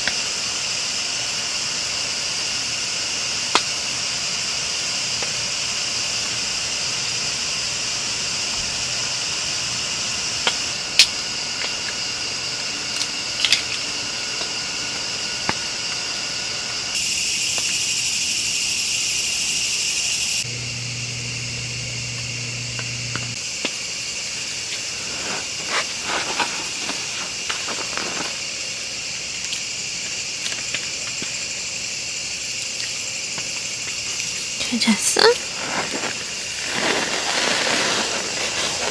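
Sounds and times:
high background hiss: 0.0s - 38.9s
low hum: 20.0s - 28.2s.

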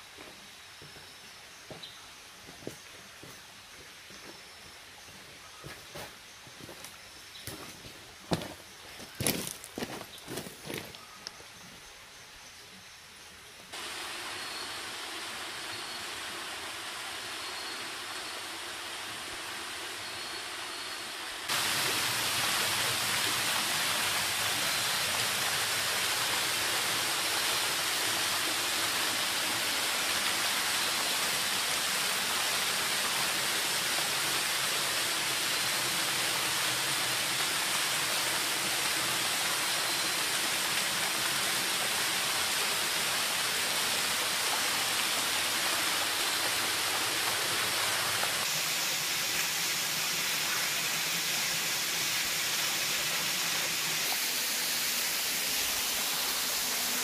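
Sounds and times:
waterfall splashing into pool: 13.7s - 57.0s.

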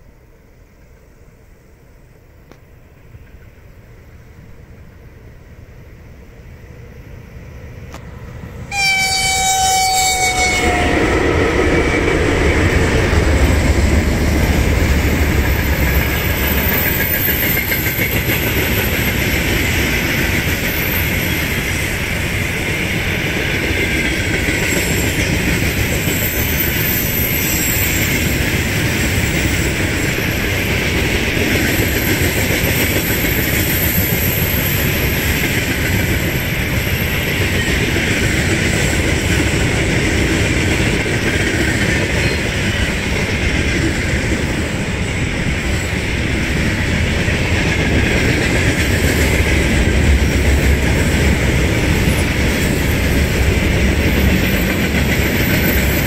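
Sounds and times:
train wheels rumbling on rails: 0.0s - 56.0s
train horn blast: 8.7s - 12.3s.

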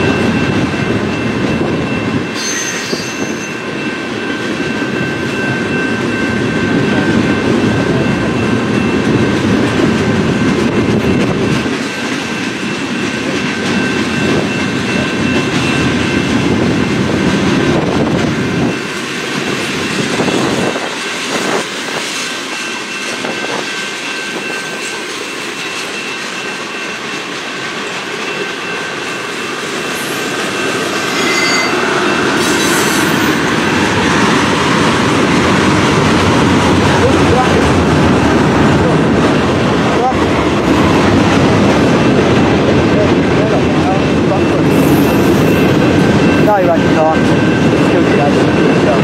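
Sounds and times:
train wheels clacking: 0.0s - 49.0s
wheel squeal: 2.4s - 3.6s, 31.0s - 31.8s.

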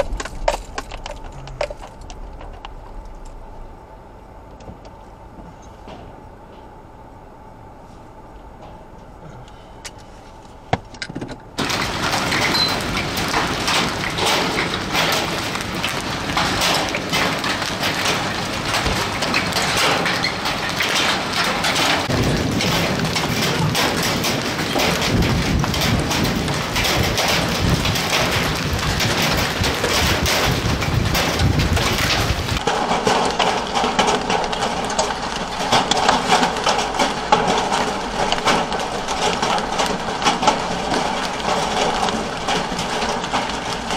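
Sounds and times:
hail clattering on pavement: 0.0s - 3.3s, 11.6s - 43.9s.

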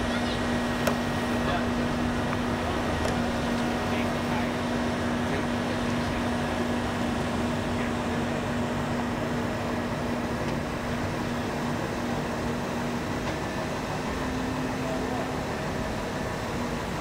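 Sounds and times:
machinery drone: 0.0s - 17.0s.

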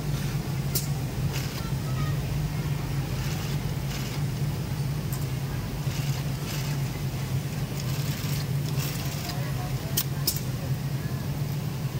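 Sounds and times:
sewing machines running: 3.0s - 4.4s, 5.8s - 9.7s.

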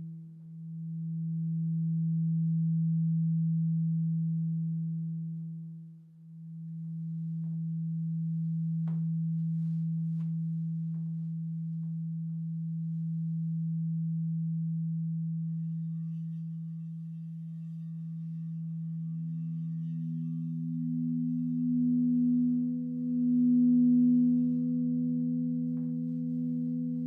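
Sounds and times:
high bell-like bowl tones: 0.0s - 27.0s
singing bowl deep hum: 0.0s - 27.0s.

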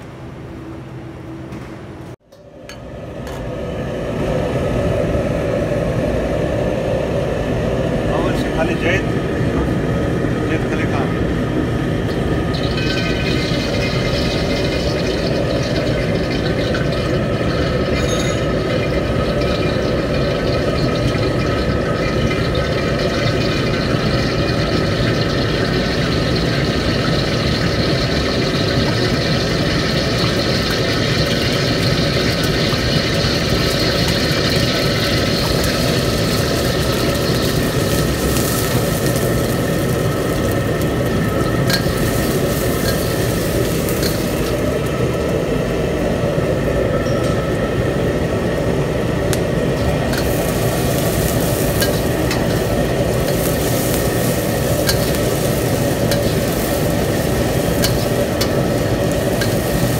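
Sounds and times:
gas burner roar: 0.0s - 59.9s
onions sizzling in hot oil: 11.8s - 59.9s
metal ladle scraping a wok: 41.7s - 44.5s, 50.1s - 59.9s.

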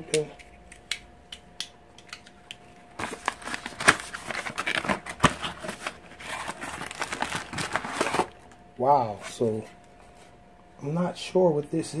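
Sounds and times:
packaging crinkling and rustling: 2.9s - 8.6s.

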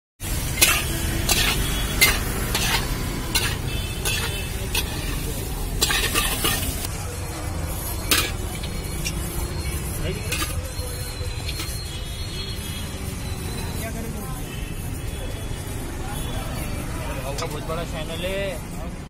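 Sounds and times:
metal spatula scraping iron pan: 0.4s - 6.9s, 7.7s - 13.9s.

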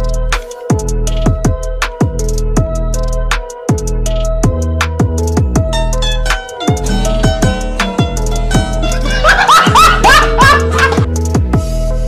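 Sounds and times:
background music with beat: 0.0s - 12.0s
person giggling: 9.0s - 11.1s.

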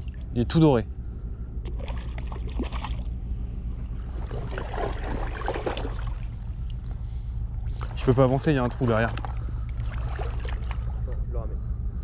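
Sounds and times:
water sloshing and splashing: 1.6s - 3.2s, 3.9s - 6.8s, 7.6s - 11.3s.

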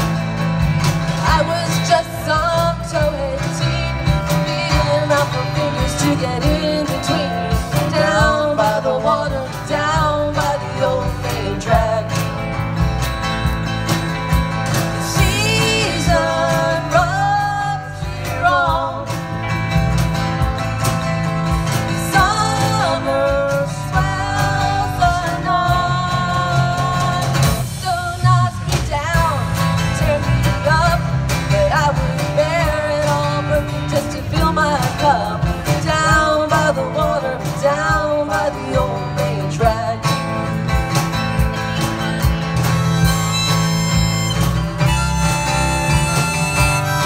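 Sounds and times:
live country rock band: 0.0s - 47.0s
woman singing: 1.2s - 12.4s, 15.0s - 19.2s, 22.0s - 40.3s.

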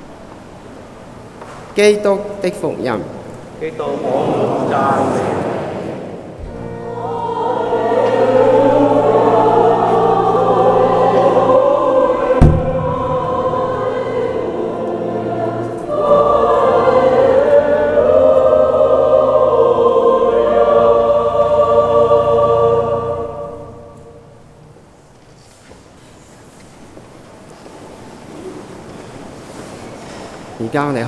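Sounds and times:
choir singing a hymn: 2.6s - 25.0s
held low tones: 6.5s - 14.7s
sharp knock: 12.4s - 13.4s.

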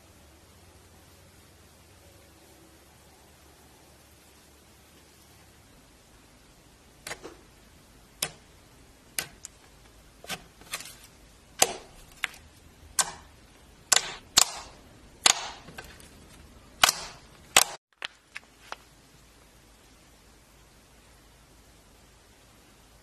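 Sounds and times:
slime popping and clicking: 13.9s - 15.6s, 16.8s - 18.1s.

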